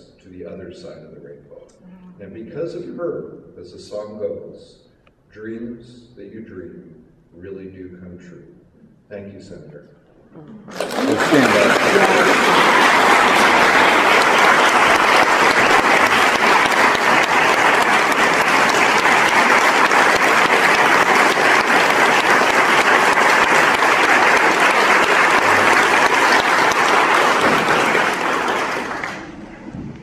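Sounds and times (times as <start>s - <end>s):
congregation applauding: 10.7s - 29.8s.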